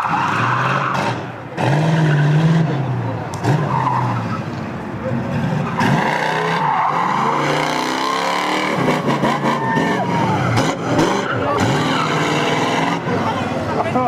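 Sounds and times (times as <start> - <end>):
car engine revving: 0.0 - 14.0
tyres squealing: 5.5 - 13.3.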